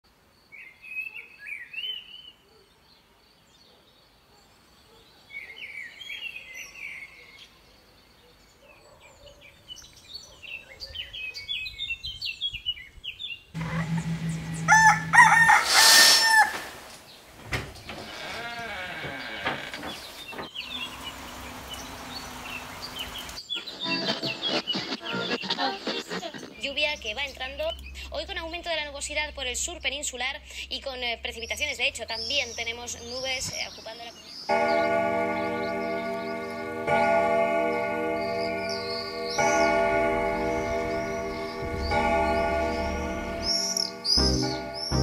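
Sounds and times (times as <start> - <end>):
small birds chirping: 0.1 - 14.5, 16.2 - 45.0
loud full sound: 13.6 - 16.9
rooster crowing: 13.6 - 16.9.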